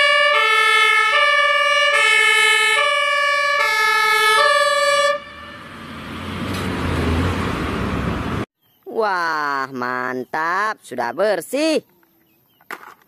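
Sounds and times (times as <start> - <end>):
two-tone ambulance siren: 0.0 - 8.4
road traffic noise: 0.0 - 8.5.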